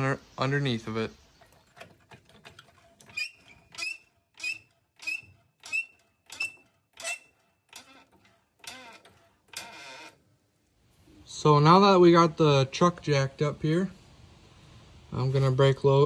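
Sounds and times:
floor jack pumping with squeak: 0:01.4 - 0:10.2.

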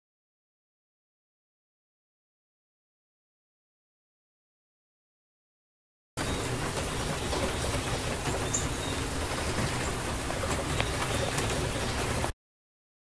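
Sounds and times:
rain hissing: 0:06.2 - 0:12.3.

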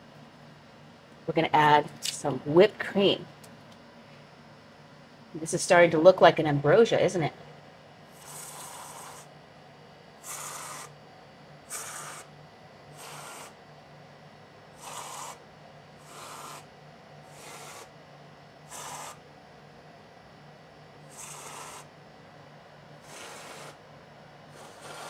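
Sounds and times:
aerosol whipped cream squirts: 0:14.8 - 0:15.4, 0:18.7 - 0:19.2, 0:21.1 - 0:21.9.

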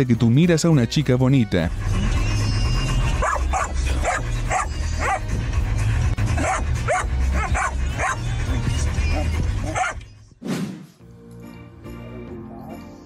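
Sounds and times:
puppy yipping and whining: 0:02.0 - 0:05.4, 0:06.3 - 0:10.1.

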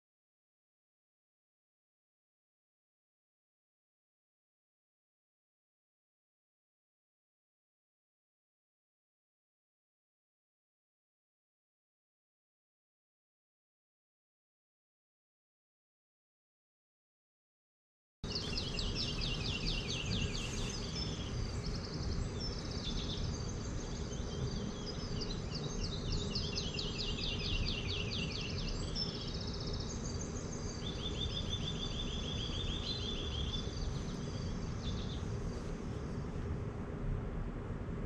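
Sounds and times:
songbirds chirping: 0:18.2 - 0:37.9
steady high whine: 0:18.3 - 0:38.0.

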